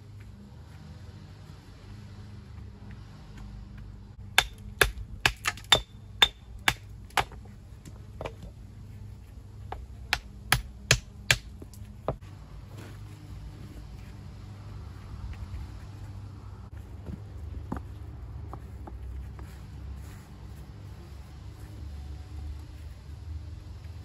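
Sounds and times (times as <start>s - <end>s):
hammer striking stone: 4.3s - 7.4s, 9.7s - 11.5s.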